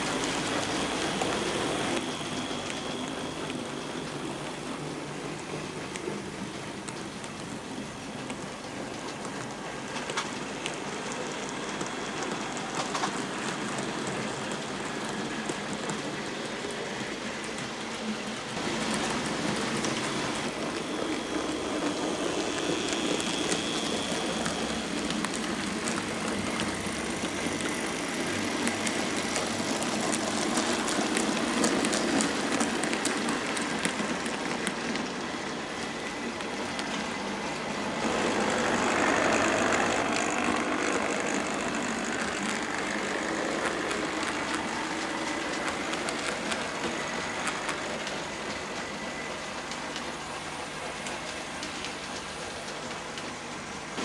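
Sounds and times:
high whine: 35.5 - 49.4
model train wheels rattling: 38.0 - 48.8.

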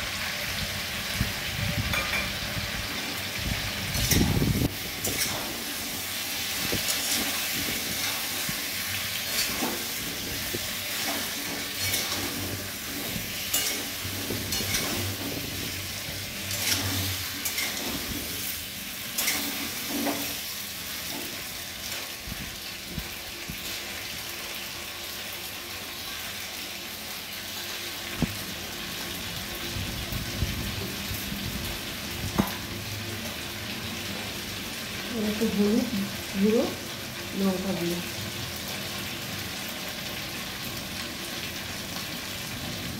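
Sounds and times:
potatoes sizzling in oil: 0.0 - 42.9
steel spatula scraping pan: 3.9 - 21.5.

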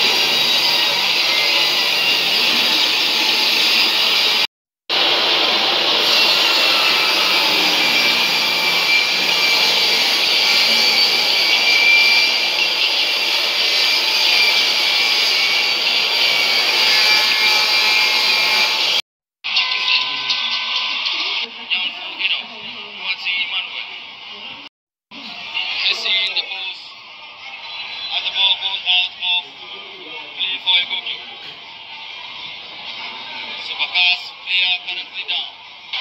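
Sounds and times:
stadium crowd roar: 0.0 - 13.8.

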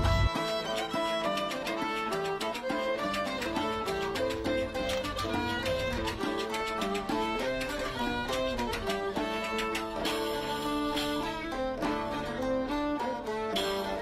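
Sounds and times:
plucked string music: 0.0 - 14.0.

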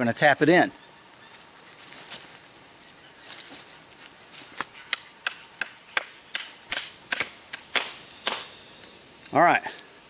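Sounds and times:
hatchet knocking wooden wedge: 4.9 - 7.9.

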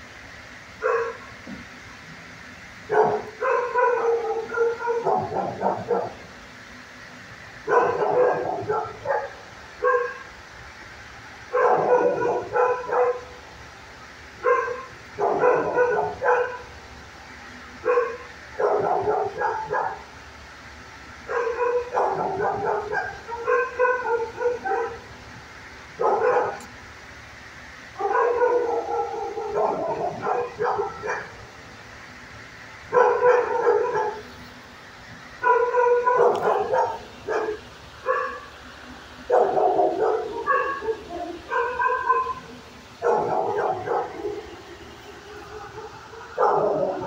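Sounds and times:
dog barking: 0.8 - 1.2, 2.9 - 6.2, 7.6 - 10.3, 11.5 - 13.4, 14.4 - 16.7, 17.8 - 20.1, 21.3 - 25.1, 26.0 - 26.7, 28.0 - 31.4, 32.9 - 34.3, 35.4 - 38.5, 39.3 - 44.5, 45.3 - 47.0.

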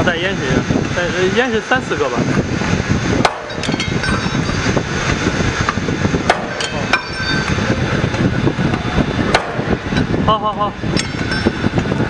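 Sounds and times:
machine rumble: 0.0 - 12.0
sharp metallic clanks: 3.2 - 4.8, 6.2 - 7.8, 10.9 - 11.9.

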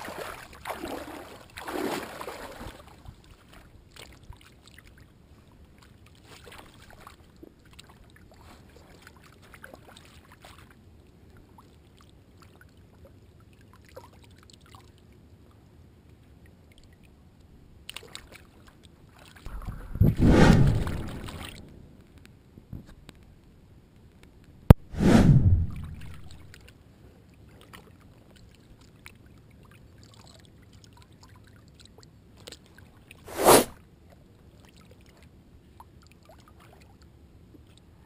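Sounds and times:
feet splashing through water: 0.0 - 4.8, 5.8 - 10.7
water lapping: 0.0 - 15.0, 17.8 - 21.9
fish splashing: 20.2 - 21.9.

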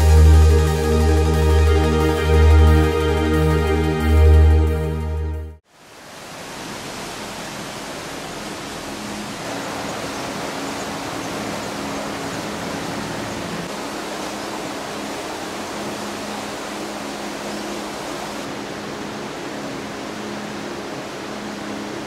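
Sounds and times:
water rushing: 5.6 - 22.0.

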